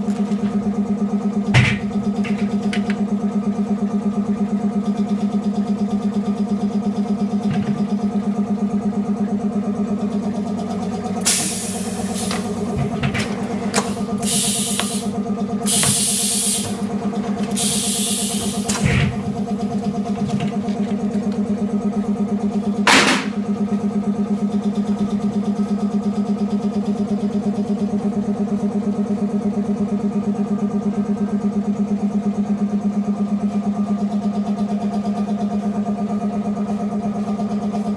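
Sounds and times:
machine pulsing hum: 0.0s - 33.4s
glass-cutting machine humming: 10.6s - 21.4s
burst of hiss: 11.3s - 12.4s, 14.2s - 15.1s, 15.7s - 16.7s, 17.6s - 18.7s.

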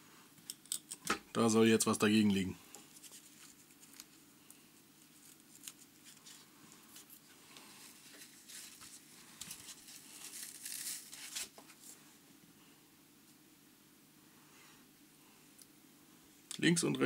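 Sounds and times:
material rustling and crinkling: 2.8s - 12.1s
light tearing: 5.1s - 7.2s, 8.1s - 11.6s.

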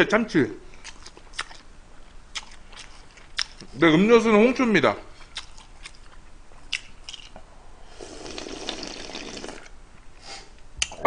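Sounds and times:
person slurping broth: 7.8s - 10.5s.

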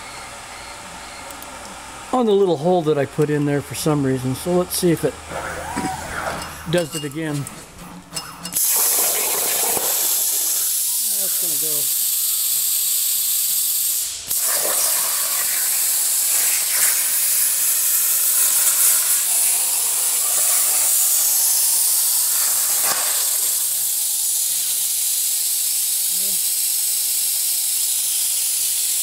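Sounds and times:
plasma cutter torch hissing: 8.5s - 29.0s.

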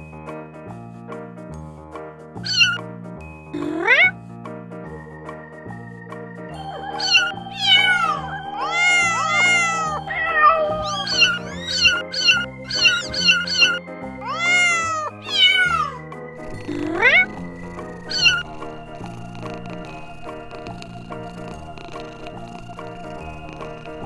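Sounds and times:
kittens mewing: 2.4s - 2.8s, 3.6s - 4.2s, 6.7s - 19.0s
background synth music: 3.6s - 24.0s.

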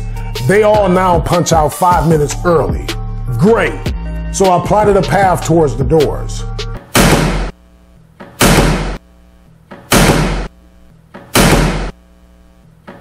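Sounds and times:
low steady hum: 6.7s - 13.0s.

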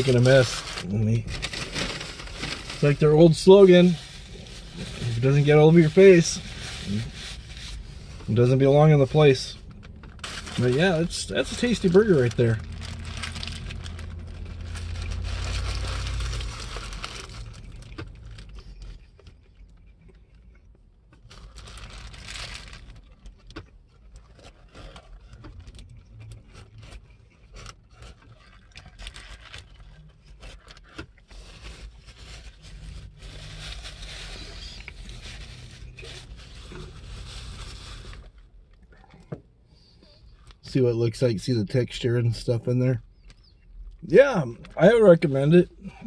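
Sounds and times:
paper wrapper rustling: 0.0s - 19.3s, 21.2s - 23.6s, 24.2s - 38.5s
person chewing a burger: 12.7s - 22.2s, 22.8s - 32.0s.

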